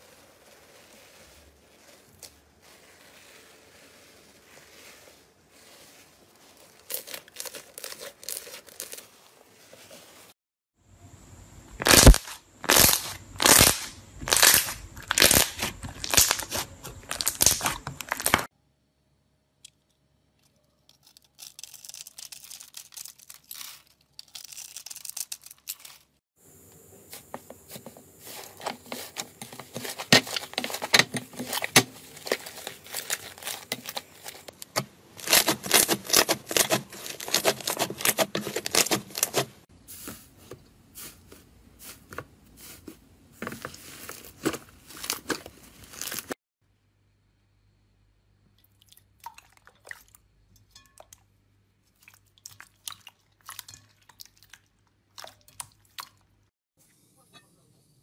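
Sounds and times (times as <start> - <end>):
slime crackling and popping: 11.8 - 18.5, 35.2 - 39.4.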